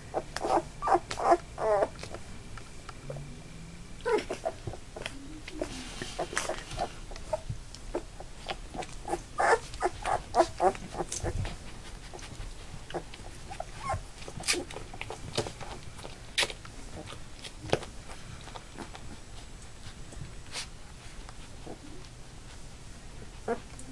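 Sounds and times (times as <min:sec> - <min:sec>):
puppies whimpering and squeaking: 0:00.0 - 0:02.2, 0:04.0 - 0:15.2, 0:23.4 - 0:23.9.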